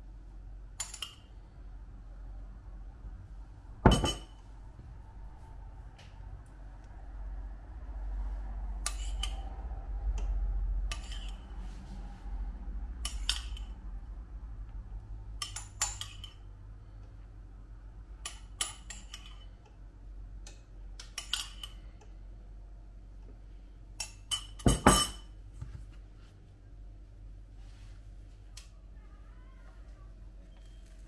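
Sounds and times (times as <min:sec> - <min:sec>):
low hum: 0:00.0 - 0:18.2
dishes clinking and knocking: 0:03.8 - 0:04.4, 0:24.0 - 0:25.3.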